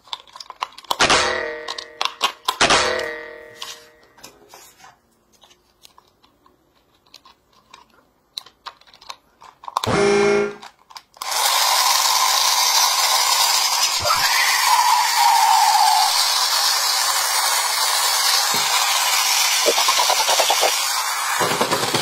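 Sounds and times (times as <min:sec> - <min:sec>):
plastic clicks of batteries: 0:05.4 - 0:09.9
toy train motor whirring: 0:10.6 - 0:22.0.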